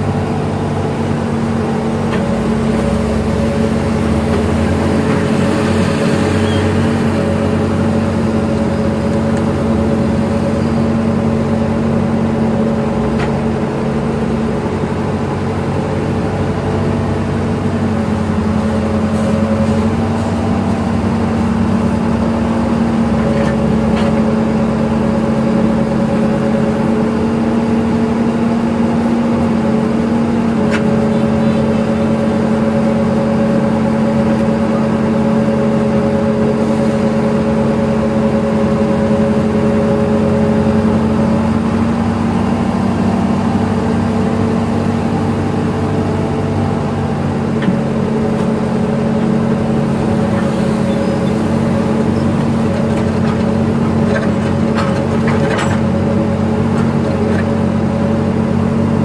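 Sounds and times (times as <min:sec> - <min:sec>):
excavator diesel engine running: 0:00.0 - 0:59.0
hydraulic hum: 0:40.6 - 0:57.8.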